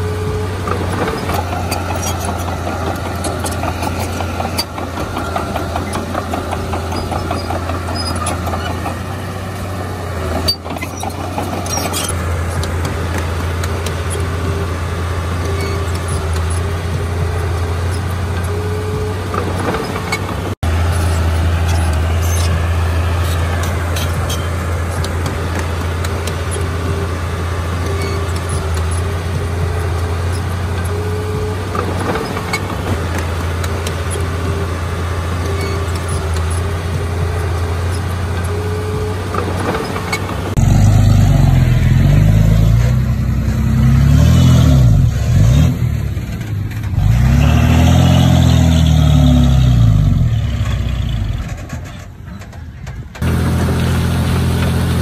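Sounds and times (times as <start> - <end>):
engine revving: 0.0 - 52.0, 53.2 - 55.0
bulldozer diesel engine running: 0.0 - 55.0
metal clanks: 0.7 - 14.6.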